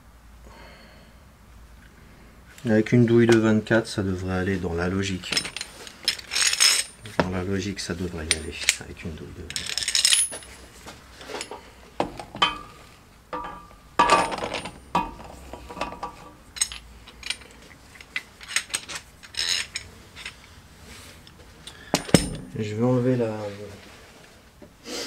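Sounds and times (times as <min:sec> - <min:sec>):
metal tools clinking: 0:05.1 - 0:07.3, 0:08.1 - 0:10.6, 0:11.2 - 0:20.5, 0:21.6 - 0:22.6.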